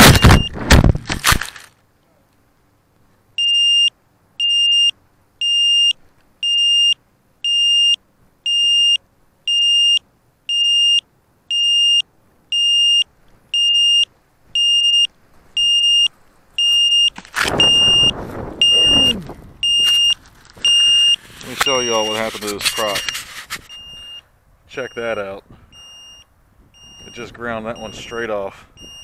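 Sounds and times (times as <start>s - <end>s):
high electronic beeps: 0.0s - 0.6s, 13.6s - 24.2s, 24.8s - 28.2s, 28.8s - 29.0s.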